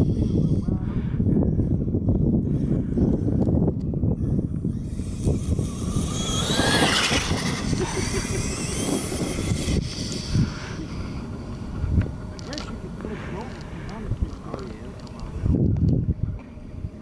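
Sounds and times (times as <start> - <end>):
toy truck motor whining: 4.2 - 11.7.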